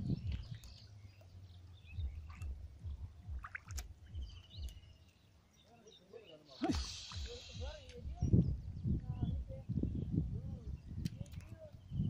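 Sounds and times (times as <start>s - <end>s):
bird chirps: 0.0s - 9.9s
splashing steps in mud: 3.3s - 4.0s.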